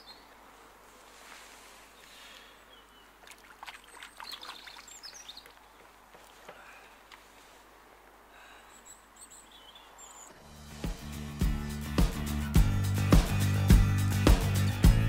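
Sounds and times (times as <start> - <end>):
songbirds singing: 0.0 - 0.5, 1.9 - 7.1, 8.4 - 10.4
faint outdoor hiss: 0.0 - 13.7.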